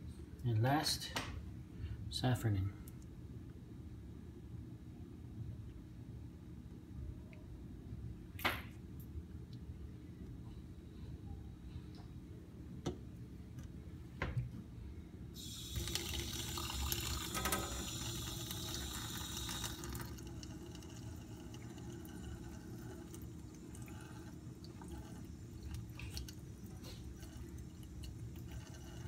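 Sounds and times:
tap water splashing into sink: 15.6 - 24.0.

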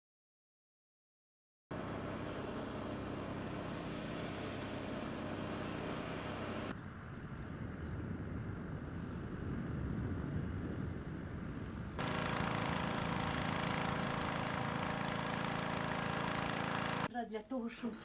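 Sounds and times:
motor humming: 1.7 - 6.7, 12.0 - 17.1
rough low engine noise: 1.7 - 6.7, 12.0 - 17.1
outdoor background noise: 1.7 - 18.0.

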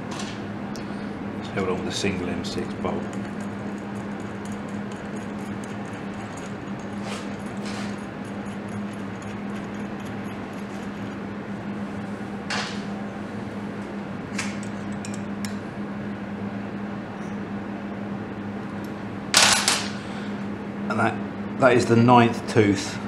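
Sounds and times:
steady low hum: 0.0 - 23.0
faint metal scrapes and clicks: 3.1 - 11.2.

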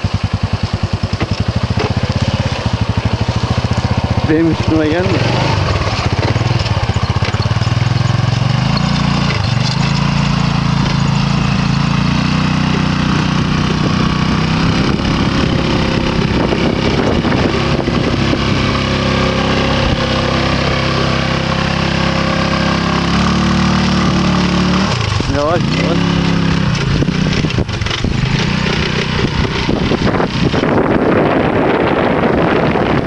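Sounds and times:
quad bike engine running: 0.0 - 33.0.

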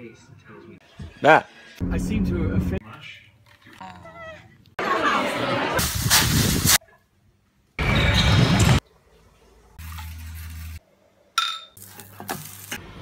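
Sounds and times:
glass bottles clinking: 11.4 - 11.8.

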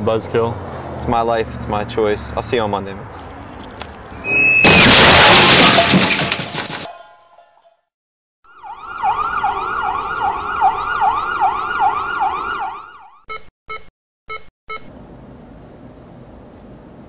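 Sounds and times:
siren yelping: 8.5 - 13.3.

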